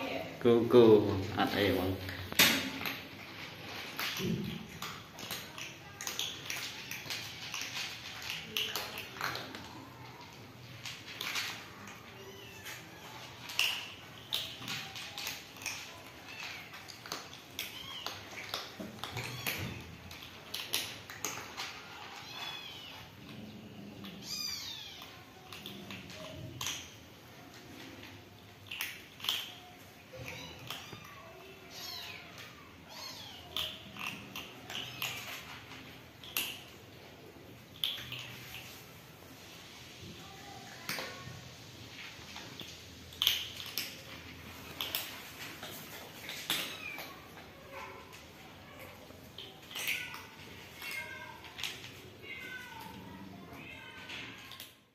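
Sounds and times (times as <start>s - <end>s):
cats crunching dry kibble: 0.4s - 54.9s
cat meowing: 19.0s - 20.0s, 22.0s - 23.1s, 24.0s - 25.5s, 30.1s - 35.3s, 49.7s - 54.6s
kitten meowing: 24.2s - 25.2s.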